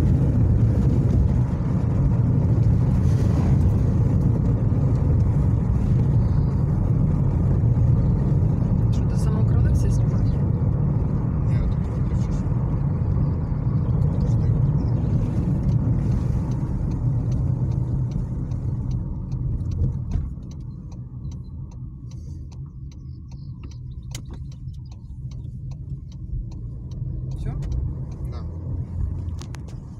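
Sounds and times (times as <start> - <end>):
tyre rumble on rough road: 0.0 - 29.9
knocks and rattles in car: 14.0 - 29.9.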